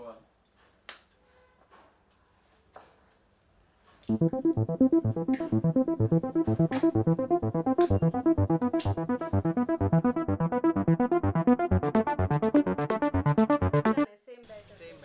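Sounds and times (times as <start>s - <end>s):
synthesizer keyboard music: 4.1s - 14.1s.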